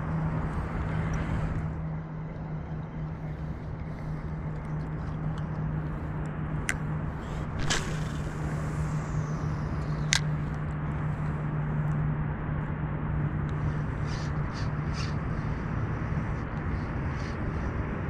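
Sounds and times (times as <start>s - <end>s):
steady low hum: 0.0s - 18.0s
swish of fishing rod and line: 7.3s - 9.3s.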